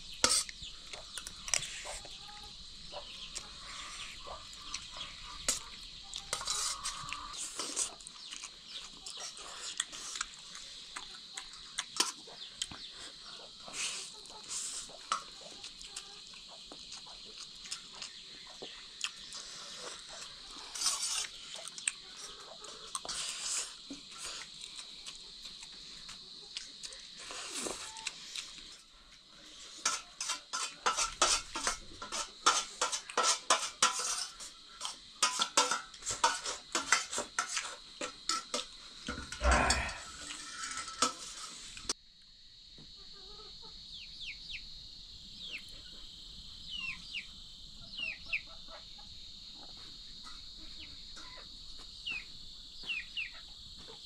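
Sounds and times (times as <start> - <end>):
metal utensils clattering on dishes: 6.3 - 7.5, 29.8 - 41.8.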